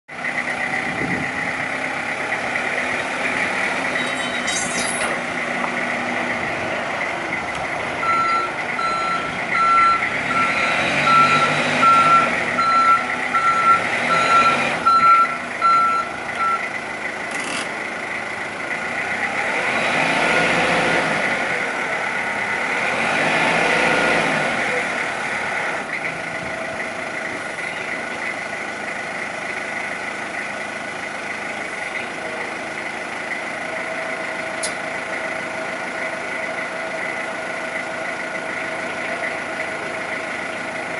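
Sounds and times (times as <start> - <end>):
forklift engine running: 0.1 - 40.9
reversing alarm beeping: 3.9 - 4.6, 8.0 - 16.7.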